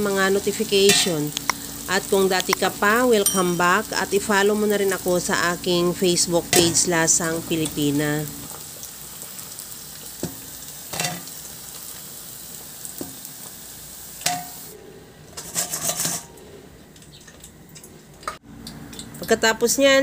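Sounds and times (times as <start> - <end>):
food deep-frying in hot oil: 0.0 - 14.7.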